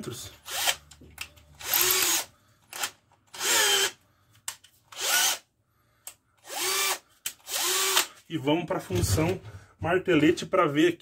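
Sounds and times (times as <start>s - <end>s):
cordless drill motor whine: 1.6s - 3.9s, 6.4s - 8.1s.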